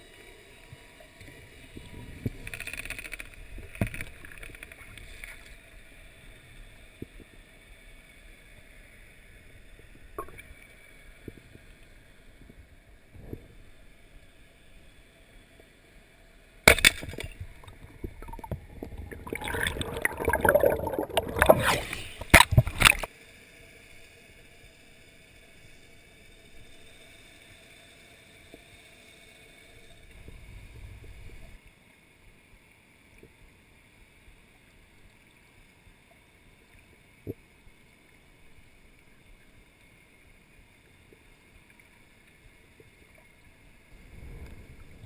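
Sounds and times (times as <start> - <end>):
clicks underwater: 1.8 - 5.6, 16.7 - 23.1
splashing gurgling water: 16.7 - 23.1
underwater murmur: 17.6 - 23.0.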